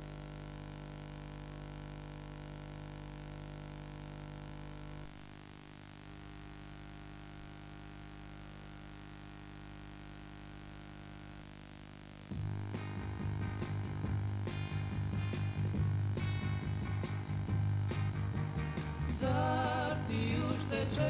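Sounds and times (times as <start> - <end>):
background hum and hiss: 0.0 - 21.0
music: 12.3 - 21.0.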